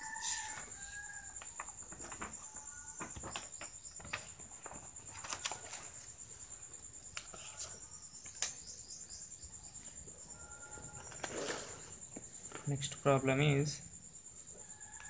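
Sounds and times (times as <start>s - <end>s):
insect trilling: 0.0s - 15.0s
paper page rustling: 4.0s - 6.1s.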